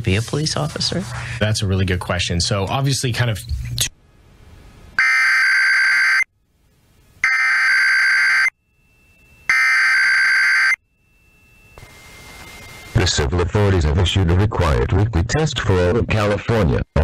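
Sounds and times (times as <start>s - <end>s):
faint radio hiss: 0.0s - 5.0s, 6.3s - 7.3s, 10.9s - 17.0s.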